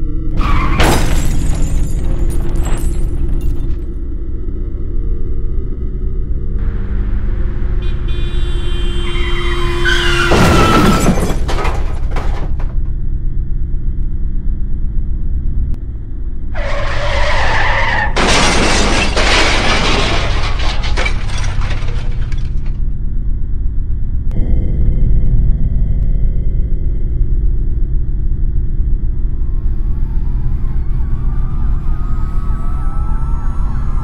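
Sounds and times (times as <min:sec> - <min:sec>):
car crash: 0:00.4 - 0:03.8, 0:06.6 - 0:12.9, 0:16.6 - 0:22.9
glass shattering: 0:00.7 - 0:03.8, 0:18.1 - 0:22.8
low rumbling drone: 0:01.2 - 0:10.0, 0:11.8 - 0:17.3, 0:19.6 - 0:34.0
tyres screeching: 0:07.8 - 0:12.7, 0:16.6 - 0:22.6.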